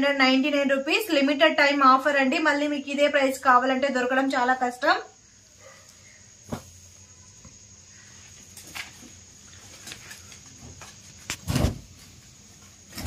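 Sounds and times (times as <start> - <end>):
faint high whine: 0.0 - 13.0
thump: 6.5 - 6.7.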